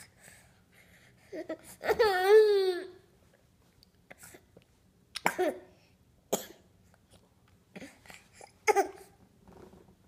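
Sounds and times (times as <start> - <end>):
baby coughing: 5.2 - 5.7, 6.3 - 6.7, 7.8 - 9.2.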